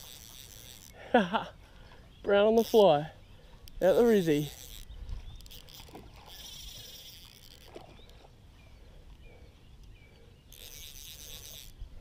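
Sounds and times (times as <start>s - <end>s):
fly reel ratchet buzzing: 0.0s - 1.1s, 2.5s - 8.0s, 10.5s - 12.0s.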